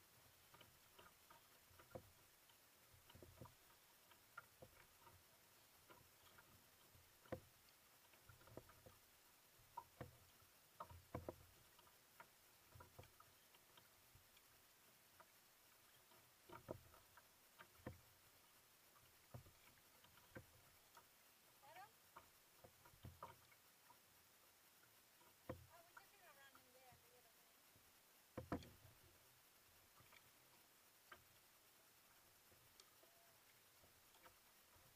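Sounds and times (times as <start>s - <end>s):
paddle splashes and drips: 0.0s - 34.9s.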